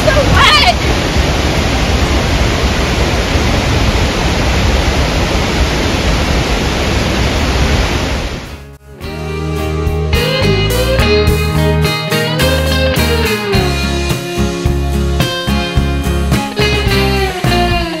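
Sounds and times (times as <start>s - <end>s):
waterfall rushing: 0.0s - 8.6s
guitar music: 8.6s - 18.0s.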